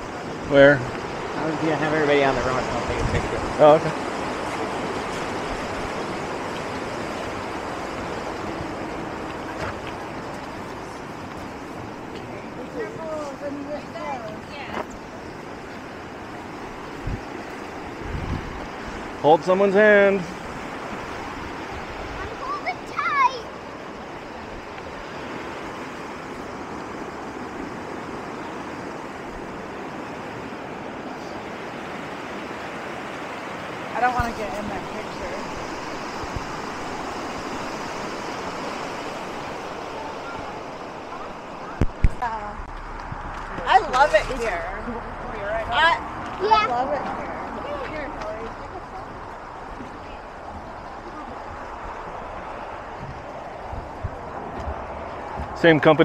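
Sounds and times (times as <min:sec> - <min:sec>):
flowing water rushing: 0:00.0 - 0:56.0.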